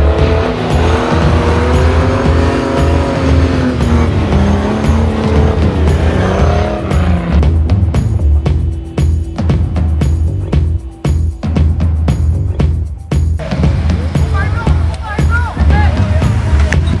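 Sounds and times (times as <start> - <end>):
buggy engine revving: 0.0 - 8.7
music with thumping beat: 0.0 - 17.0.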